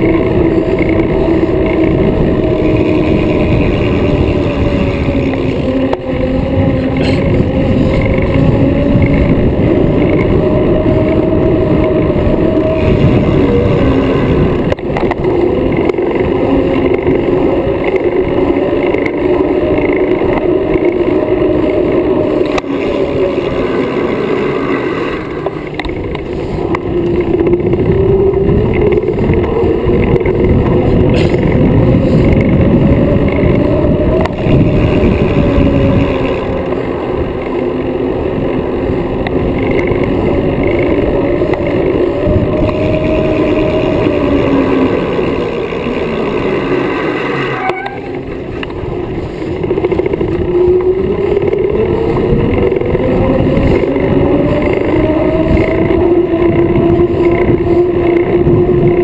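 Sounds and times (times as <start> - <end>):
hum rising and falling: 0.0 - 59.0
wind and road noise rushing: 0.0 - 59.0.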